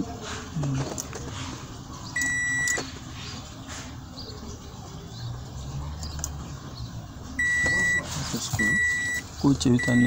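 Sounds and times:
high-pitched warning beep: 2.2 - 2.8, 7.4 - 9.2, 9.8 - 10.0.

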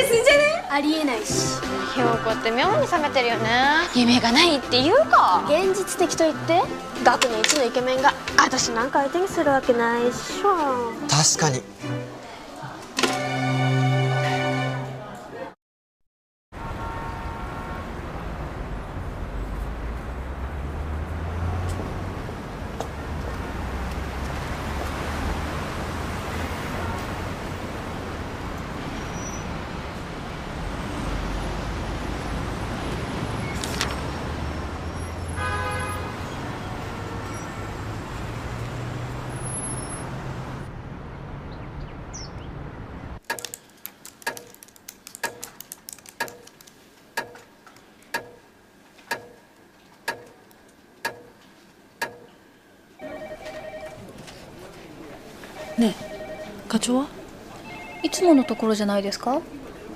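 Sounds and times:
city street traffic: 0.0 - 15.6, 16.5 - 59.9
telephone ringing: 53.0 - 54.1, 55.5 - 56.8, 57.6 - 58.9
brief high tone: 57.6 - 58.7.

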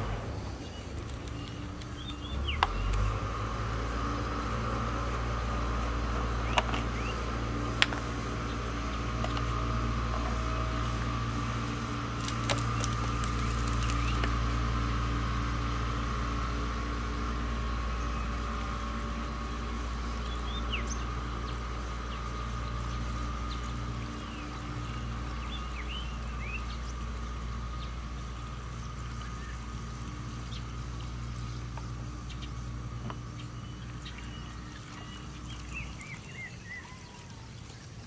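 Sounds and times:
birds chirping: 0.0 - 38.0
low mechanical hum: 0.0 - 38.0.

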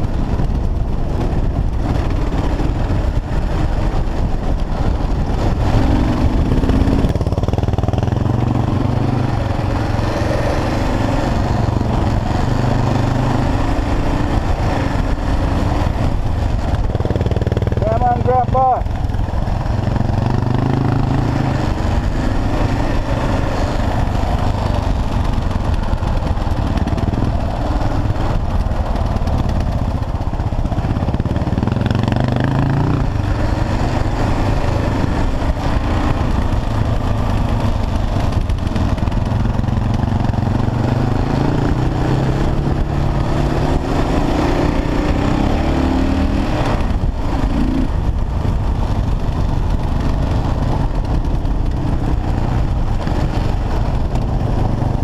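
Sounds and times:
motorcycle engine revving: 0.0 - 55.0
wind noise on microphone: 0.0 - 55.0.

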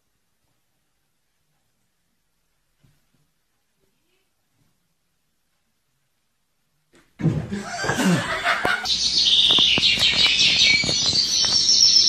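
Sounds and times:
birds chirping: 7.6 - 12.0.

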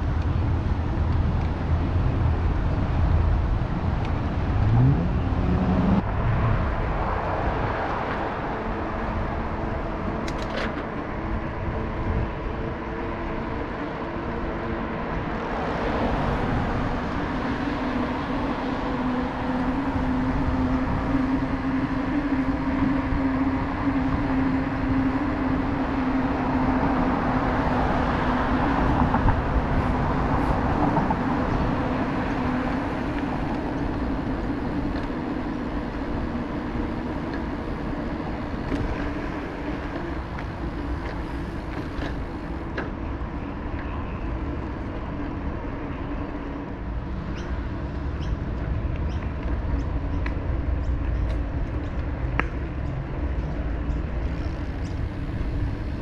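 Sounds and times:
tyre and wind noise: 0.0 - 56.0.

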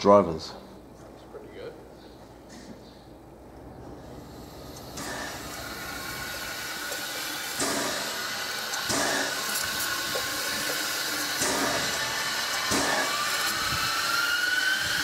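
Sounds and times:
steam hissing: 4.1 - 15.0.

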